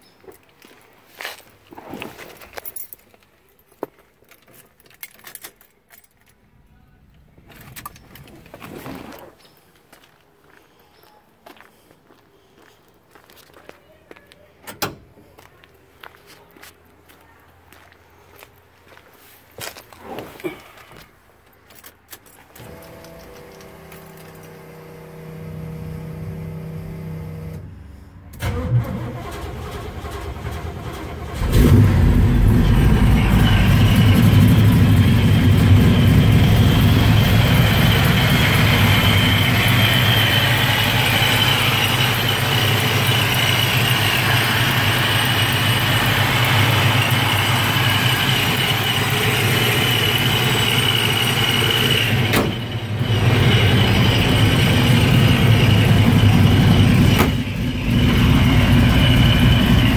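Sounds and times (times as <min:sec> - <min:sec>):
supercharger whine: 0:31.3 - 0:59.9
car engine running: 0:31.4 - 0:59.9.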